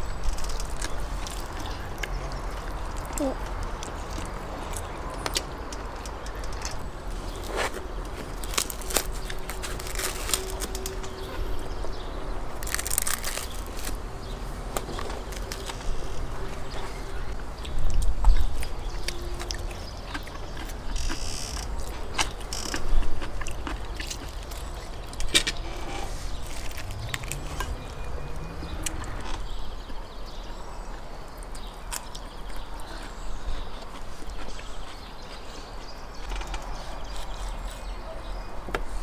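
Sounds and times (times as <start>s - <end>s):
chewing: 17.8s - 25.3s, 28.8s - 38.0s.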